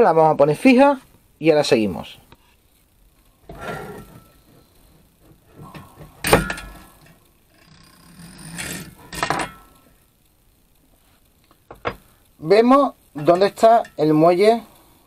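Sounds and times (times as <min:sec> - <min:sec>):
metal clanking and scraping: 0:03.4 - 0:09.8, 0:13.2 - 0:14.0
metallic knocks ringing: 0:05.7 - 0:07.1, 0:08.6 - 0:09.8.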